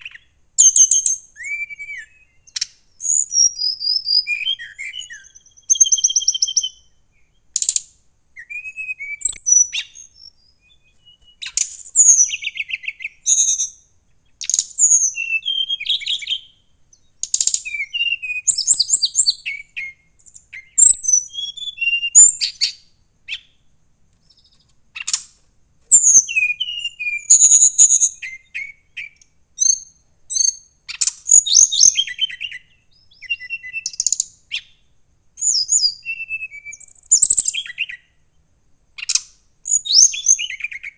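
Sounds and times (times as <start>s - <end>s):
bird singing whistled trills: 0.0s - 38.3s, 39.0s - 40.9s.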